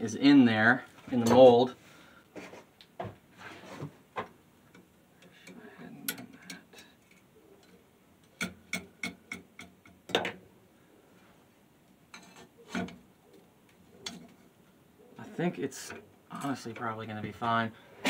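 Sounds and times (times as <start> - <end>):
sharp metal clicks and taps: 4.7 - 10.2.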